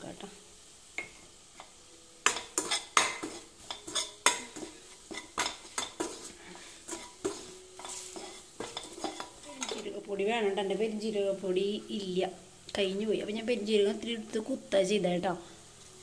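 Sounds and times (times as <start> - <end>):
ladle clanking and scraping in pot: 1.0 - 9.9.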